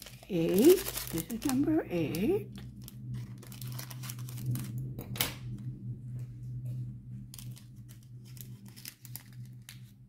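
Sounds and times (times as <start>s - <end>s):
plastic packets rustling: 0.0s - 5.0s, 7.3s - 10.0s
steady low hum: 0.0s - 10.0s.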